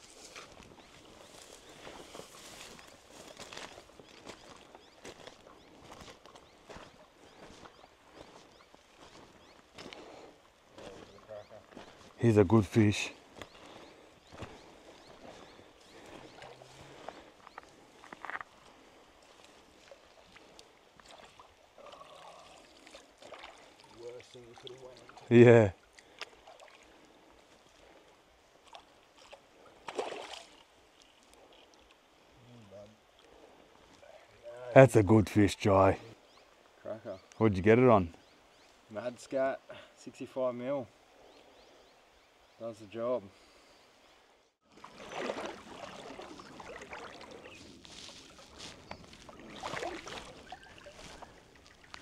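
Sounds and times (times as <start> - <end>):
faint trickling creek water: 0.0 - 52.0
water splashing around wading legs: 19.2 - 25.3, 28.6 - 31.2, 44.7 - 52.0.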